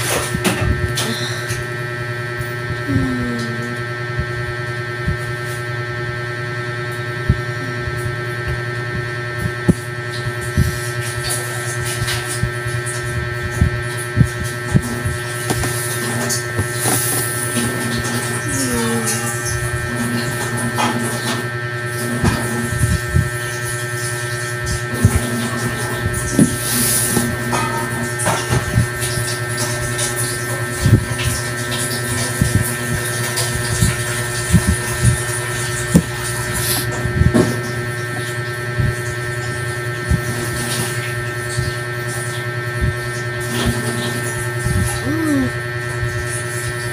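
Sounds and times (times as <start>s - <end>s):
low electrical hum: 0.0s - 46.9s
soft low thumps: 12.4s - 17.3s, 22.8s - 23.4s, 33.8s - 35.3s.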